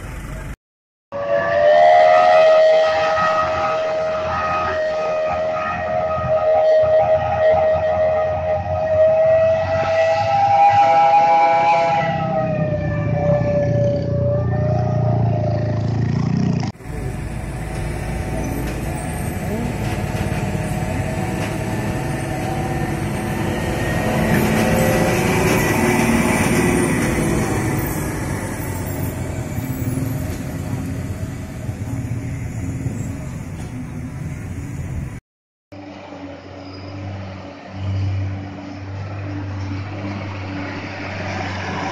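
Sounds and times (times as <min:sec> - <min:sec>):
diesel engine rumble: 0:00.0 - 0:00.6, 0:11.6 - 0:35.2
trucks driving past: 0:00.0 - 0:00.6, 0:07.9 - 0:35.2, 0:35.8 - 0:41.9
truck air horn: 0:01.1 - 0:15.6, 0:19.2 - 0:30.2.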